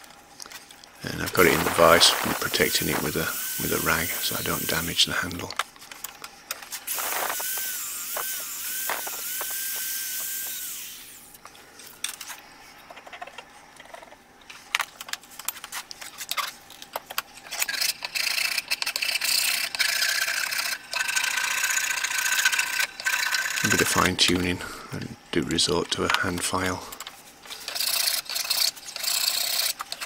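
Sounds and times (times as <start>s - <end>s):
electric file on wood: 1.0s - 5.5s, 6.9s - 11.4s, 17.7s - 24.5s, 27.6s - 30.0s.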